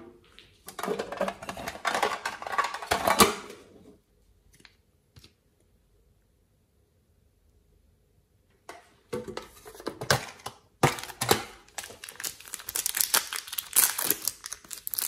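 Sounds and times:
plastic containers clicking: 9.2s - 14.1s.

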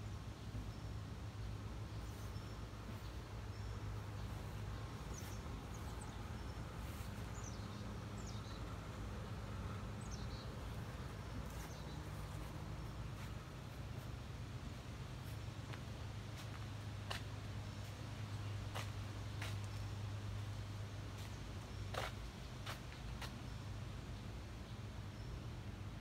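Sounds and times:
birds chirping: 0.3s - 20.5s.

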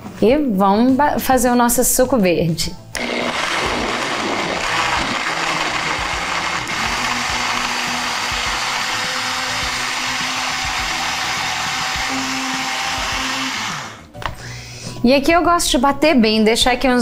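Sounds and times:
blender motor hum: 3.0s - 14.1s
liquid churning in blender: 3.0s - 14.1s.

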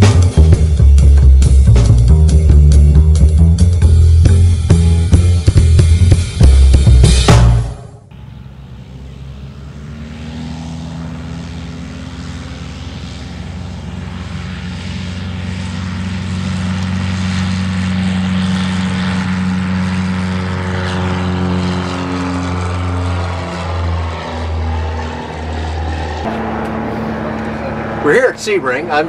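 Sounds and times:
light aircraft engine and propeller: 8.0s - 29.0s.

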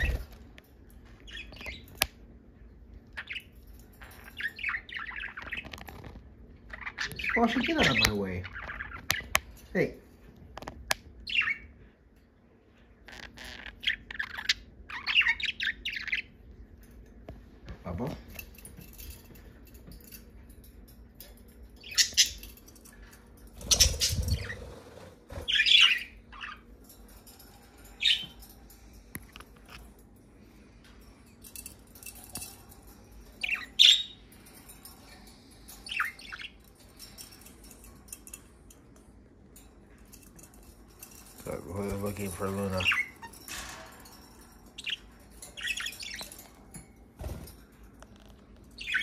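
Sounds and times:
budgerigars chirping and squawking: 0.0s - 0.5s, 1.1s - 2.2s, 3.0s - 9.9s, 10.6s - 11.8s, 13.1s - 16.4s, 21.8s - 22.6s, 23.6s - 26.7s, 27.8s - 29.1s, 32.4s - 37.8s, 41.0s - 46.6s, 48.2s - 49.0s.

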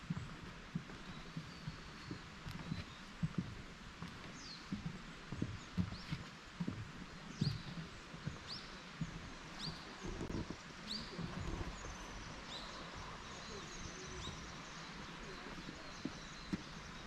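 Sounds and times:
footsteps on wooden planks: 0.0s - 17.0s
bird chirping: 7.2s - 17.0s.

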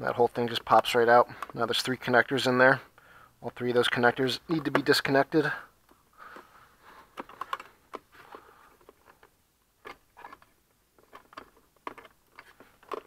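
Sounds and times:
plastic connectors clicking and rattling: 7.1s - 8.1s, 8.8s - 13.0s.

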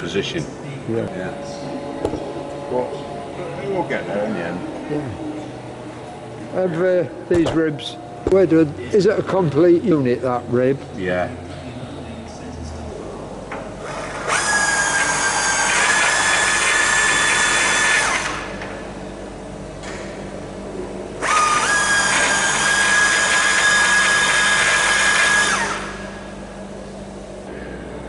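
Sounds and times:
cordless drill whining: 13.9s - 18.5s, 21.2s - 26.0s.

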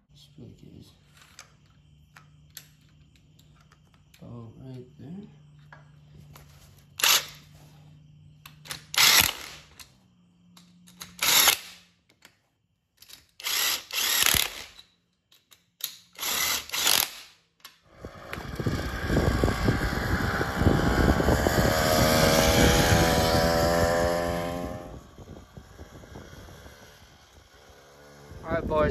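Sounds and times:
two-stroke engine running: 18.0s - 28.9s.

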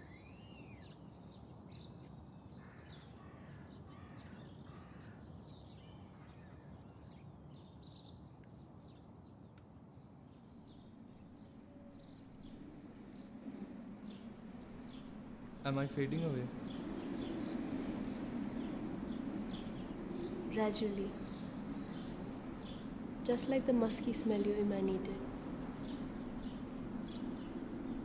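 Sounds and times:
low background noise: 0.0s - 28.0s
small birds chirping: 6.7s - 28.0s
low hum: 12.0s - 28.0s.

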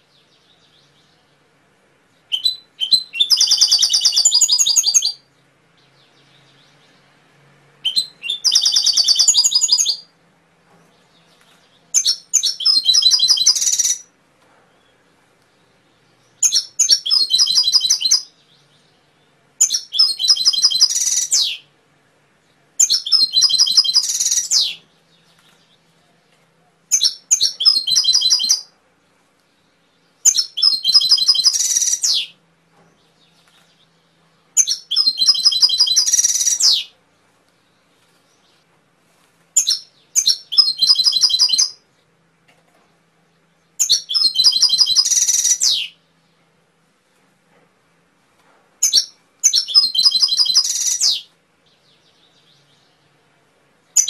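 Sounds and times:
canary trilling: 2.3s - 5.2s, 7.8s - 10.1s, 11.9s - 14.1s, 16.4s - 18.5s, 19.6s - 21.7s, 22.8s - 24.8s, 26.9s - 28.7s, 30.2s - 32.4s, 34.6s - 36.9s, 39.6s - 41.8s, 43.8s - 46.0s, 48.8s - 51.3s.

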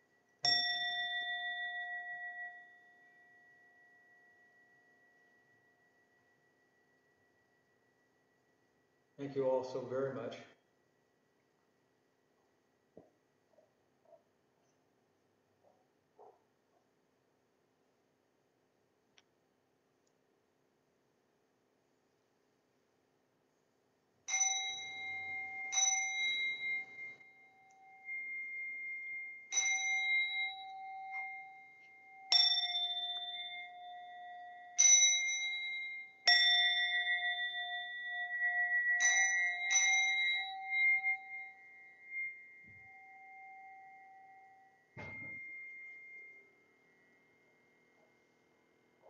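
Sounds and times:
standing bowl bells ringing: 0.0s - 10.0s, 24.3s - 49.0s.

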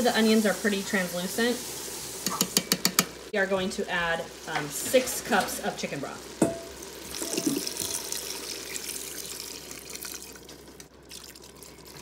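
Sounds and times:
broth pouring into a pot: 6.4s - 12.0s.

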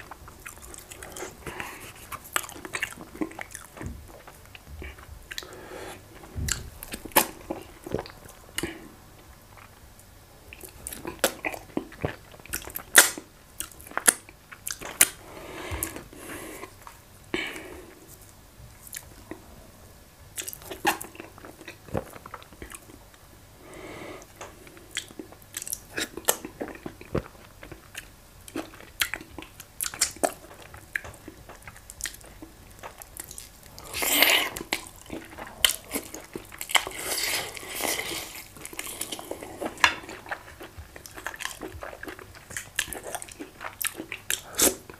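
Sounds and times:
man chewing food: 0.0s - 19.6s, 20.2s - 44.9s.

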